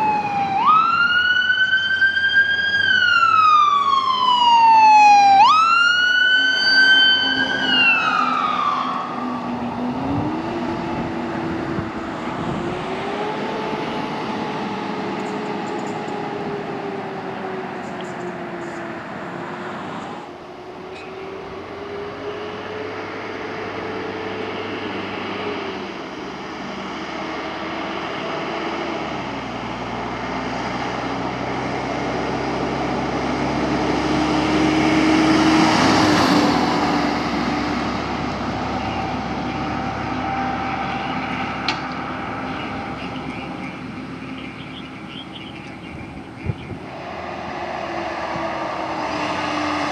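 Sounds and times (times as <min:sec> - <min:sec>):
fainter siren: 0:00.0 - 0:19.4, 0:38.2 - 0:46.6, 0:47.8 - 0:49.9
emergency siren wailing: 0:00.0 - 0:49.9
road noise: 0:00.0 - 0:49.9
vehicle approaching: 0:00.0 - 0:49.9.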